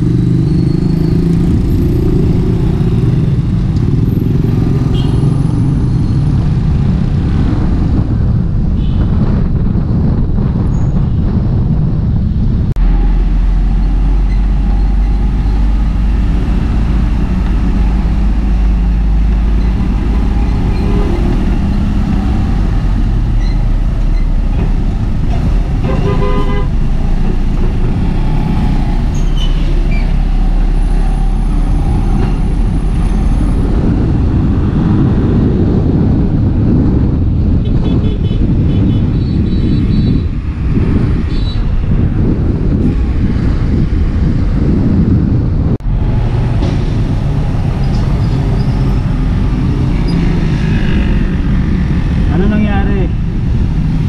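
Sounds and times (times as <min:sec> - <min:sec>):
scooter engine and road noise: 0:00.0 - 0:54.0
vehicle horn: 0:04.9 - 0:05.3, 0:25.8 - 0:26.8, 0:37.6 - 0:40.1.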